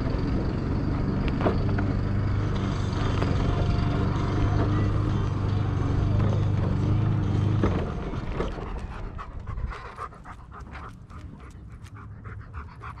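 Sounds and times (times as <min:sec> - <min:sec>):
dog panting rapidly: 0:08.4 - 0:13.0.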